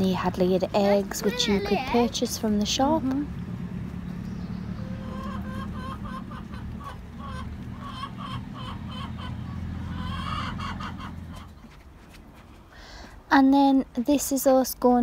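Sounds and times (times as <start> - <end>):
hens clucking: 0.7 - 11.9.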